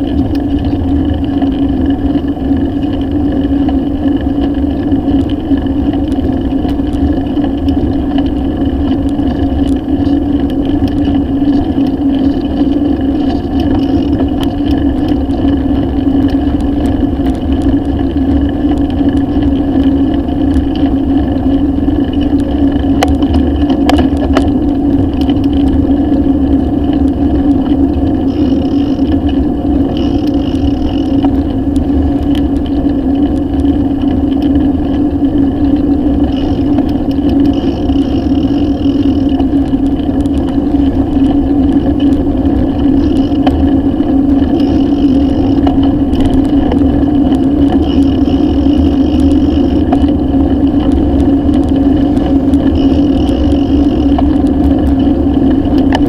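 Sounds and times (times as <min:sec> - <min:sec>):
bicycle tyres on asphalt: 0:00.0 - 0:56.0
wind noise: 0:00.0 - 0:56.0.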